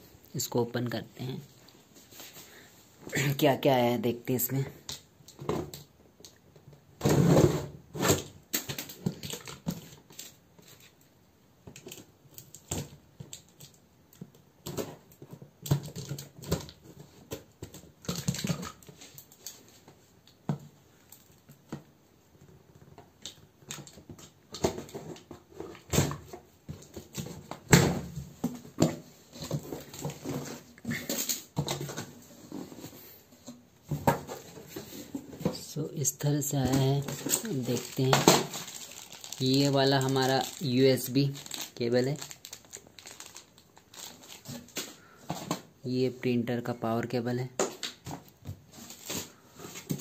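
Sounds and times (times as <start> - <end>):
cardboard scraping and rustling: 24.6 - 35.6, 48.1 - 50.0.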